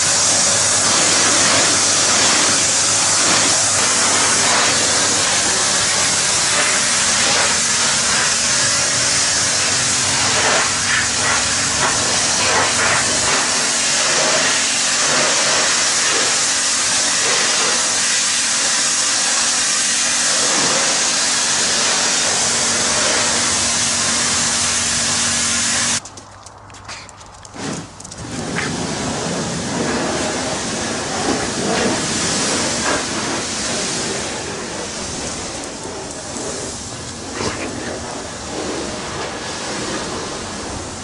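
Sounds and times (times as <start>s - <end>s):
pressure washer spray hissing: 0.0s - 26.0s, 27.6s - 41.0s.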